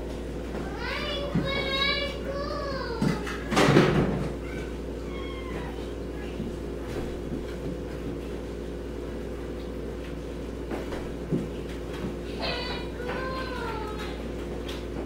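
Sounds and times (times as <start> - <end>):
steady low hum: 0.0 - 15.0
cats meowing: 4.3 - 6.4.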